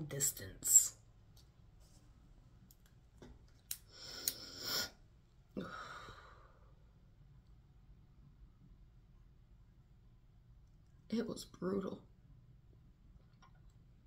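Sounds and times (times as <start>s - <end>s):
woman sighing: 5.6s - 6.6s.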